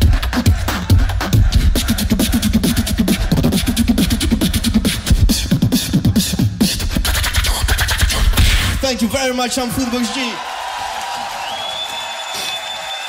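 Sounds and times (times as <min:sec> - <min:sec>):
person beatboxing: 0:00.0 - 0:08.8.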